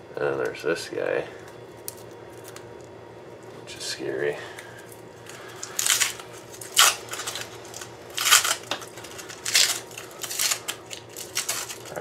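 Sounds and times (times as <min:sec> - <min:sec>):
foil and paper crinkling: 0:04.7 - 0:12.0.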